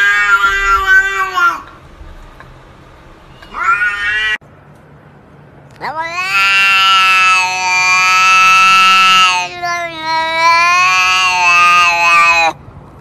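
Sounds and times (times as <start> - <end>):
cat meow: 0.0 - 1.7, 3.4 - 4.4, 5.8 - 12.6
cat yowling: 0.0 - 1.8, 3.3 - 4.4, 5.8 - 12.6.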